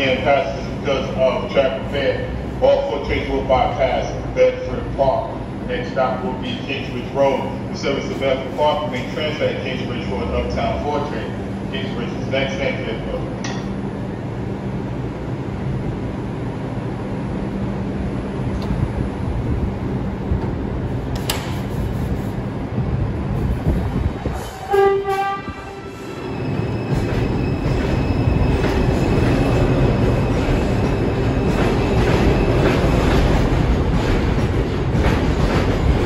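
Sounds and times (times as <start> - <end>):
electric whine of train: 0.0 - 36.0
subway train hum: 0.0 - 36.0
train horn toots: 24.5 - 26.1.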